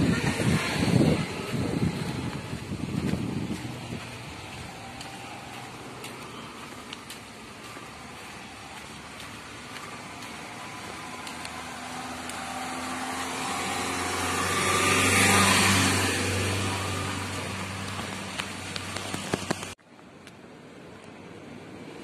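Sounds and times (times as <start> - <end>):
vehicle passing: 0.0 - 19.8.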